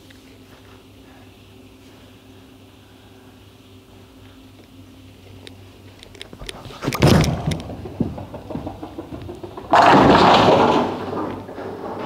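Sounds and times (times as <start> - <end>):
bowling ball rolling: 6.6 - 12.0
bowling pins clattering: 6.6 - 12.0
bowling ball thud on lane: 7.0 - 12.0.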